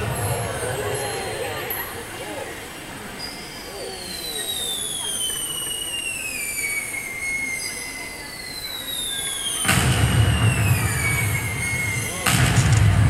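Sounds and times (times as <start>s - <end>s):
falling firework whistles: 0.0s - 2.0s, 3.0s - 13.0s
firework burst with deep boom: 8.9s - 13.0s.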